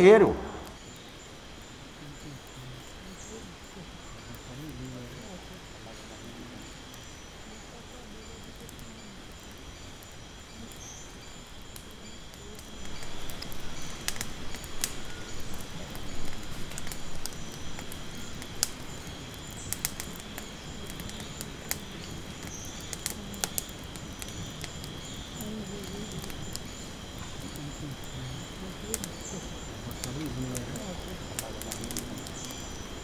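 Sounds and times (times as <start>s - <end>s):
bonfire crackling and popping: 0.0s - 33.0s
insects chirring: 0.0s - 33.0s.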